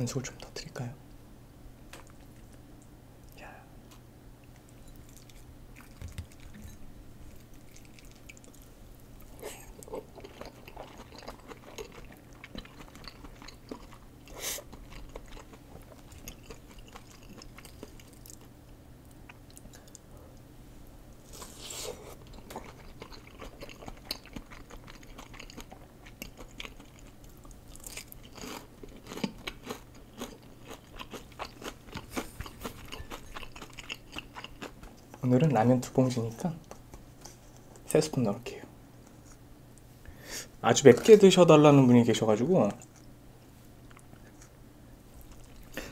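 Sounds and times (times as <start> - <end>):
person chewing food: 3.9 - 20.5, 21.2 - 35.2, 45.2 - 45.9.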